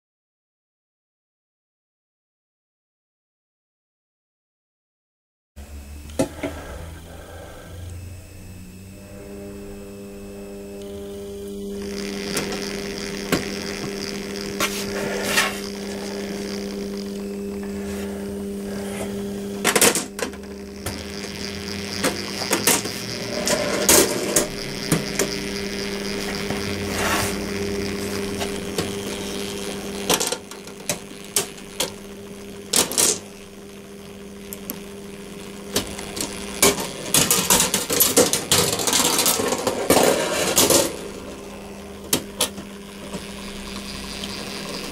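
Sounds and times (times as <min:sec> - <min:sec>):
electric motor humming: 0:05.6 - 0:44.9
gears clicking and knocking: 0:19.6 - 0:25.5, 0:35.7 - 0:41.4.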